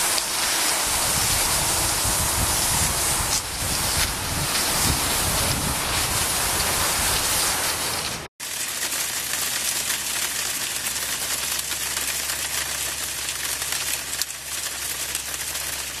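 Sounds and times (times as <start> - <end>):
rain pattering: 0.0 - 16.0
wind buffeting microphone: 0.8 - 8.2.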